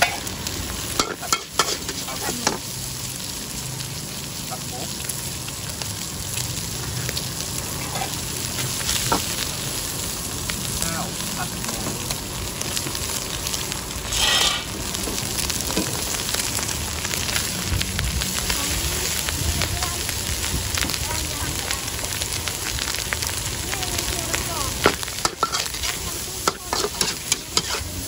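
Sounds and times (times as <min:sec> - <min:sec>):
metal spatula scraping wok: 0:00.0 - 0:00.3, 0:01.0 - 0:02.6, 0:14.0 - 0:14.8, 0:24.8 - 0:28.0
food sizzling in a wok: 0:00.0 - 0:28.0
spatula clinking on wok: 0:01.0 - 0:02.6
burst of hissing: 0:14.0 - 0:14.8.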